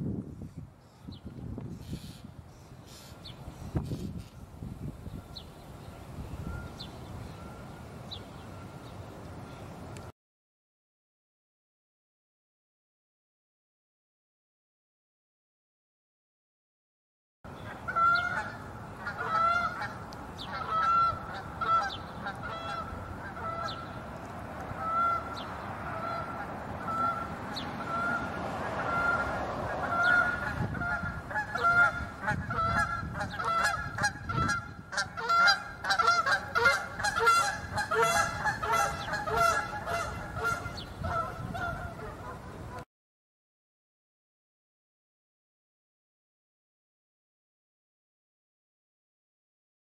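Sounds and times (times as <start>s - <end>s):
flock of birds calling: 17.6s - 24.0s, 24.8s - 42.8s.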